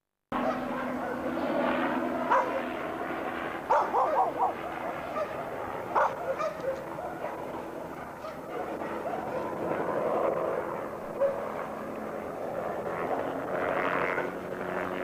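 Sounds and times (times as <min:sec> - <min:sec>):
helicopter droning overhead: 0:00.3 - 0:15.0
dog barking: 0:00.4 - 0:01.3, 0:02.2 - 0:02.8, 0:03.7 - 0:10.0, 0:11.1 - 0:11.8.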